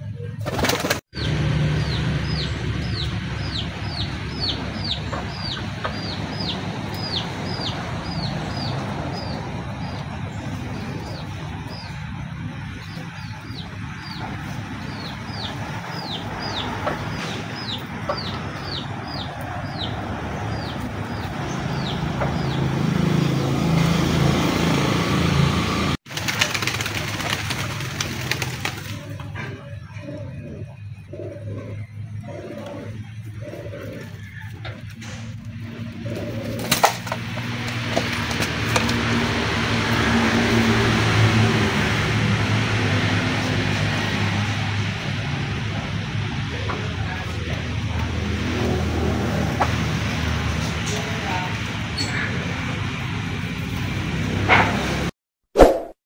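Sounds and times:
chick peeping: 0:01.2 - 0:12.0, 0:12.8 - 0:22.6.

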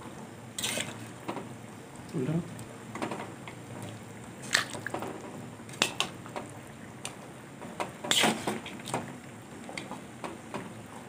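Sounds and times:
metal spoon scraping a pan: 0:00.6 - 0:01.0, 0:08.1 - 0:08.6.

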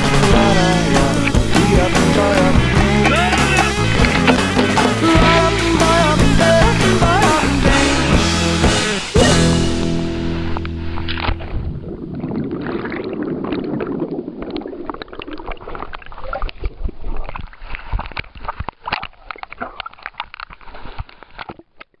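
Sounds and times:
water splashing from kicking legs: 0:10.8 - 0:21.8.

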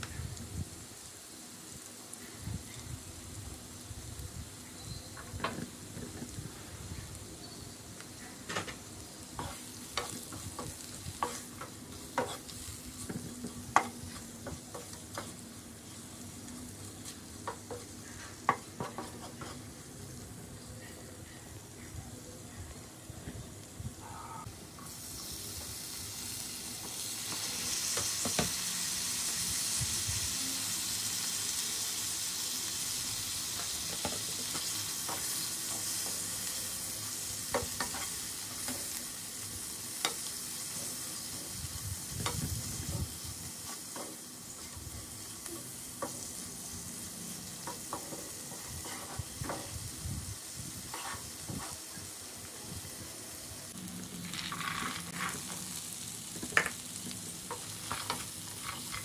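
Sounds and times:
masala sizzling in oil: 0:00.0 - 0:59.0
spatula scraping and tapping pan: 0:09.4 - 0:15.4, 0:17.4 - 0:19.7, 0:37.5 - 0:38.9, 0:47.6 - 0:49.7, 0:50.9 - 0:51.8.

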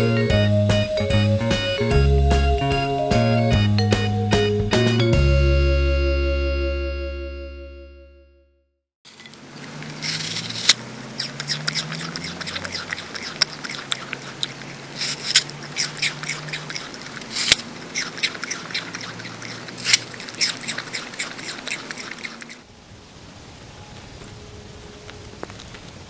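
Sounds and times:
possum chewing fruit: 0:09.6 - 0:22.7.

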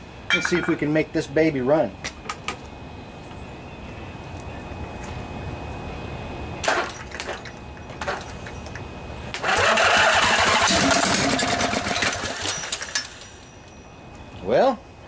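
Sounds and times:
engine cranking and running: 0:09.3 - 0:13.5.

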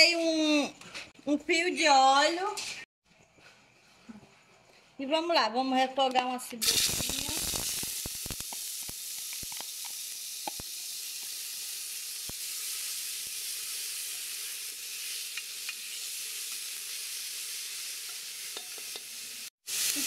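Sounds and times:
onion sizzling in hot oil: 0:06.6 - 0:20.0.

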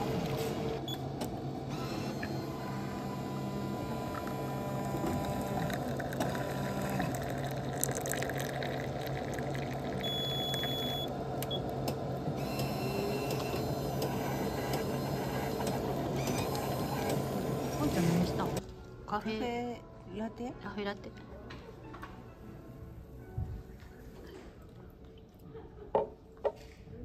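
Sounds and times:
coffee machine humming: 0:00.0 - 0:18.6
liquid trickling into cup: 0:05.2 - 0:10.9
machine beep: 0:10.0 - 0:11.6.

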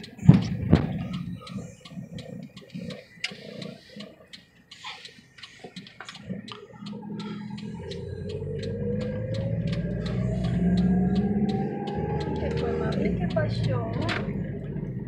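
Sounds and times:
car running rumble: 0:00.0 - 0:15.0
light clicks and ticks: 0:00.0 - 0:15.0.

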